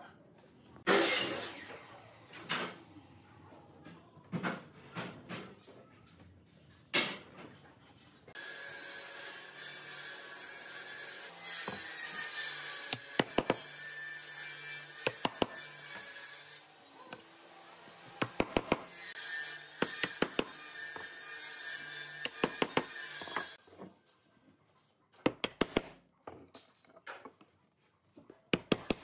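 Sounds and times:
sharp wooden knocks: 0:12.9 - 0:13.6, 0:18.2 - 0:18.9, 0:19.8 - 0:21.1, 0:22.2 - 0:23.4, 0:25.3 - 0:26.0.

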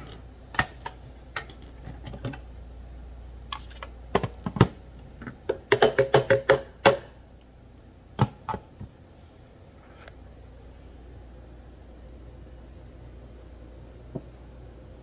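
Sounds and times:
knocking on plastic blender jar: 0:05.5 - 0:07.0.

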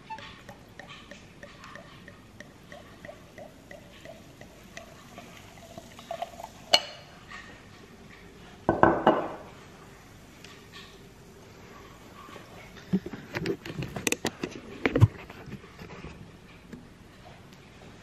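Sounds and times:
sparkling wine pouring and fizzing: 0:00.0 - 0:07.2
bottle clunking on stone countertop: 0:08.7 - 0:09.4.

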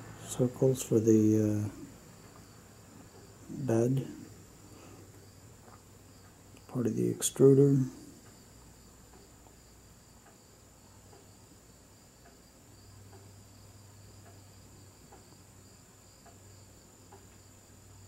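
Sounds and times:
faint soft ticks: 0:07.4 - 0:09.6, 0:10.2 - 0:11.5, 0:12.2 - 0:13.5, 0:14.2 - 0:15.4, 0:16.2 - 0:16.5, 0:17.1 - 0:17.5.

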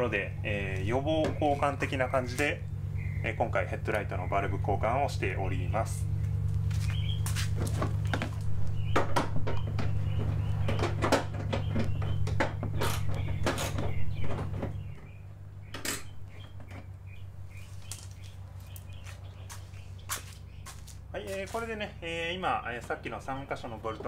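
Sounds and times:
steady low hum: 0:00.0 - 0:24.0.

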